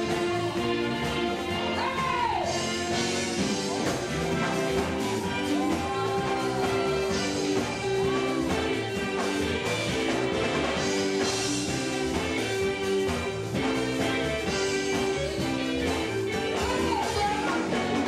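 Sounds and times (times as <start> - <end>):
electric guitar: 0.0 - 18.0
gospel band music: 0.0 - 18.0.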